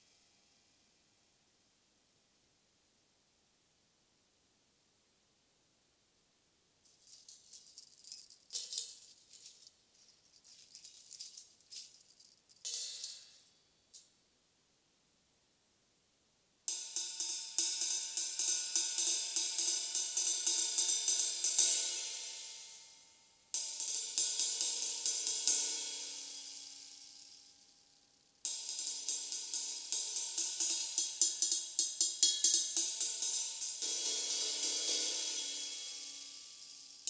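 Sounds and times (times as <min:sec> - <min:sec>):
tambourine jingles: 0:06.9 - 0:14.1, 0:23.6 - 0:37.0
cymbal struck with sticks: 0:16.7 - 0:22.6, 0:28.5 - 0:37.0.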